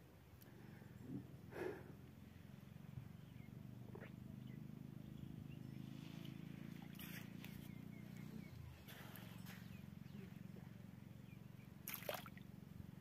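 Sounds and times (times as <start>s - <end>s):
steady low drone: 0.4s - 13.0s
faint bird chirps: 3.1s - 12.3s.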